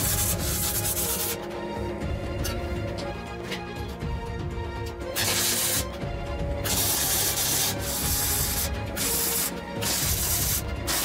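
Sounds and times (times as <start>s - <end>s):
welder crackling: 0.0s - 1.4s, 5.1s - 6.0s, 6.7s - 11.0s.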